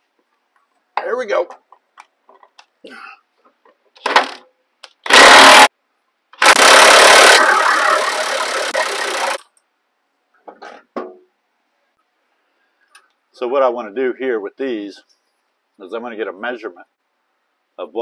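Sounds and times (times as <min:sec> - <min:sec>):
impact wrench hammering: 0:05.1 - 0:05.7, 0:06.4 - 0:09.4.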